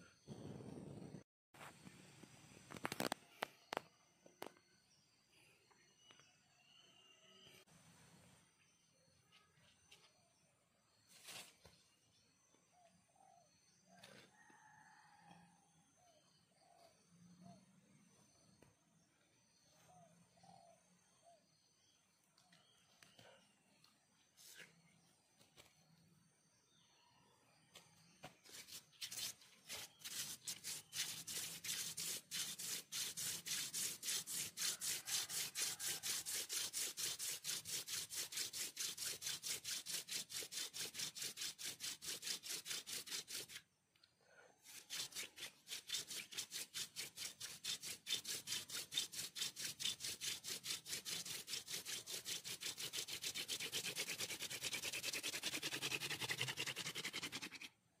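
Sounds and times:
wooden spindle rubbing on board: 28.5s - 43.6s, 44.7s - 57.8s.

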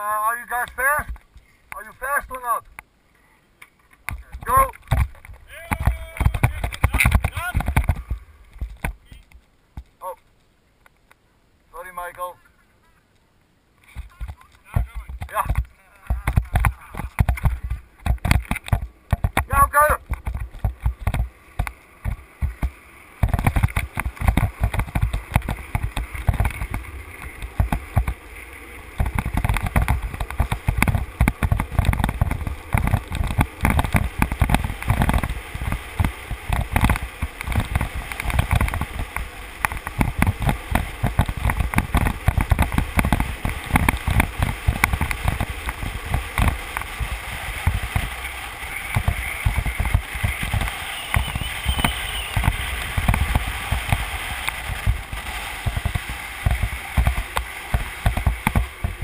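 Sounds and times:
wheels rolling on asphalt: 0.0s - 11.2s, 11.8s - 59.0s
wind buffeting microphone: 16.2s - 59.0s.

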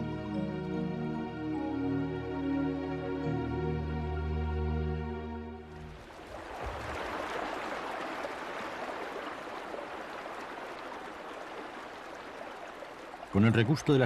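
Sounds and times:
brook babbling over rocks: 5.8s - 14.0s.

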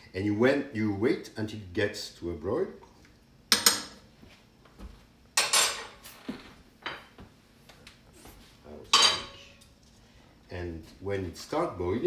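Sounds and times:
metal cookware clanking: 5.4s - 6.0s, 8.9s - 9.7s.

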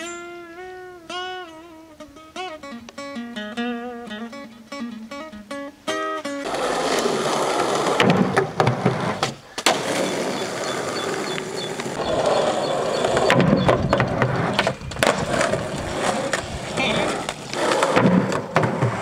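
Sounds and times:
skateboard clacking on ground: 6.4s - 19.0s
skateboard wheels rolling on asphalt: 6.4s - 19.0s.

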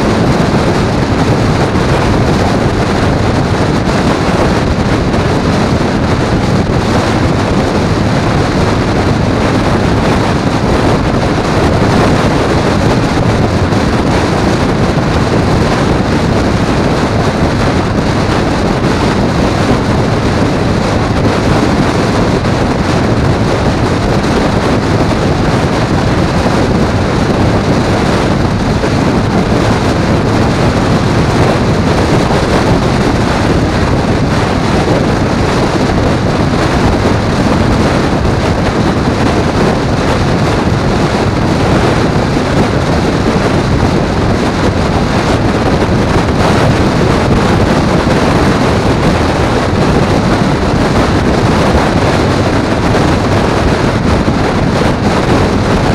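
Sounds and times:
road and engine noise: 0.0s - 55.9s
wind rush over microphone: 0.0s - 55.9s.

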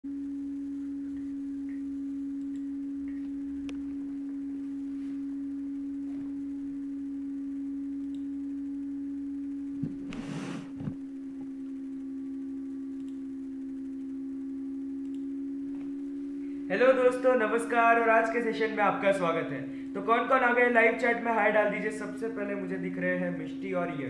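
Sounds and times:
pure electronic tone: 0.0s - 24.0s
faint clicks: 8.0s - 8.4s, 12.9s - 14.1s, 15.0s - 15.3s
rustling noise: 9.8s - 11.0s.

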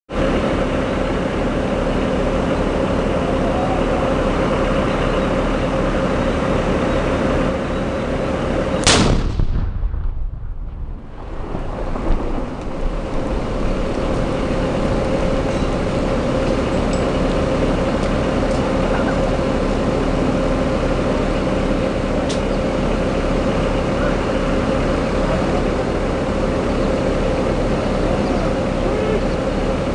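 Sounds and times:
steady background drone: 0.1s - 29.9s
loud explosion blast: 8.8s - 16.1s.

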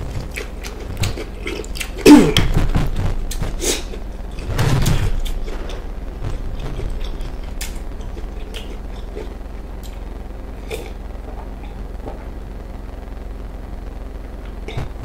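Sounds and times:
wet mouth clicks: 6.8s - 10.0s
person gulping a drink: 10.6s - 11.8s.

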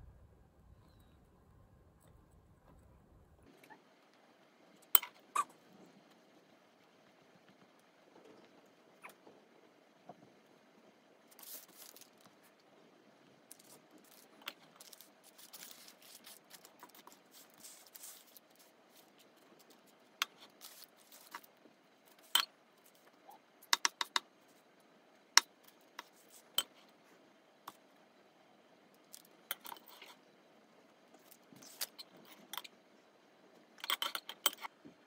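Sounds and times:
parchment rustling: 11.3s - 12.7s, 13.5s - 24.6s.

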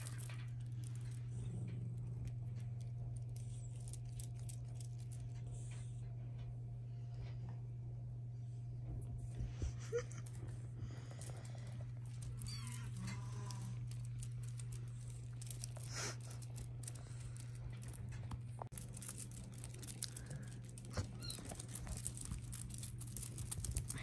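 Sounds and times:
steady low hum: 0.0s - 24.0s
paws scratching and rustling: 11.2s - 24.0s.

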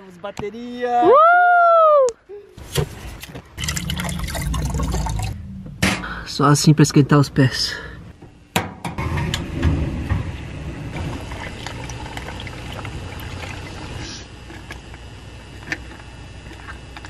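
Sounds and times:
water pouring into hot-water bottle: 3.6s - 5.4s, 11.0s - 14.2s.

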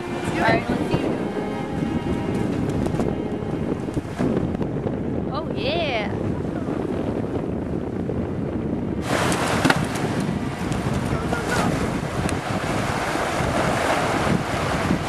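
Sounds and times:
wind buffeting microphone: 0.0s - 15.0s
surf washing up beach: 9.0s - 15.0s.

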